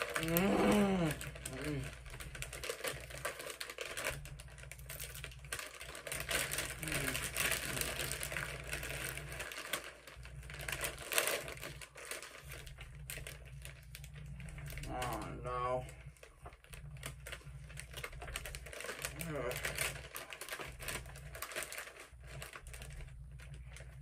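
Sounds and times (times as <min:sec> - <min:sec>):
chips crunching in mouth: 0:00.0 - 0:10.0
chip bag crinkling: 0:00.0 - 0:24.0.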